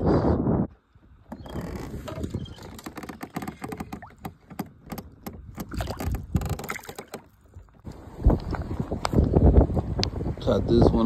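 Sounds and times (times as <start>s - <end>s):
fish handling knocks and rubs: 1.5s - 7.8s.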